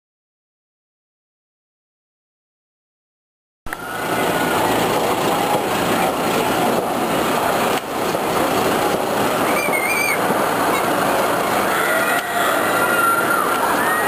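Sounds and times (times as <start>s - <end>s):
roller coaster lift mechanical noise: 3.7s - 14.0s
wavering whistle-like tone: 9.4s - 10.2s.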